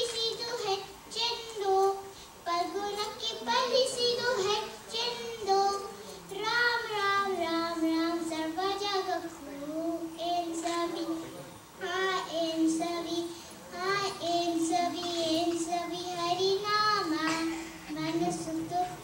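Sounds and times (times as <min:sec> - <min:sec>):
boy singing into a microphone: 0:00.0 - 0:19.0
breaths: 0:02.1 - 0:02.4, 0:05.9 - 0:06.3, 0:13.3 - 0:13.7, 0:17.4 - 0:17.9.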